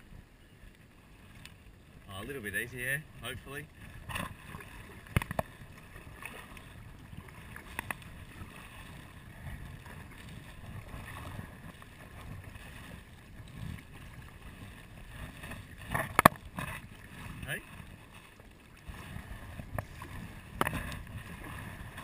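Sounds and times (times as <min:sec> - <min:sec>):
water swishing and dripping: 0:00.7 - 0:22.0
paddle knocks: 0:15.3 - 0:17.5.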